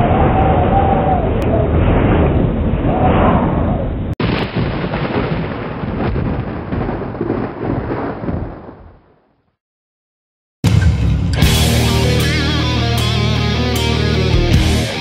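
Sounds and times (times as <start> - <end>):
dense rumbling noise: 0.0 - 9.0.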